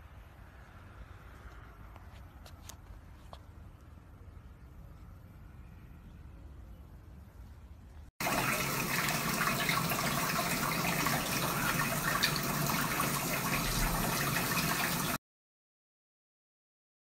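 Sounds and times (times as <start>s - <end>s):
water running into bathtub: 8.2s - 15.2s.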